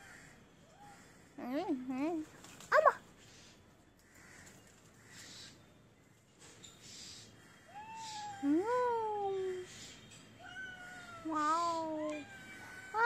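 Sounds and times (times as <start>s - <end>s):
cat meowing: 10.4s - 13.0s.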